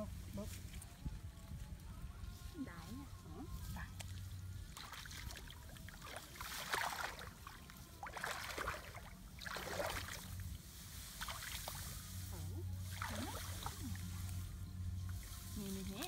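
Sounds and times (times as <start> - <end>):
muddy water splashing: 4.0 - 14.5.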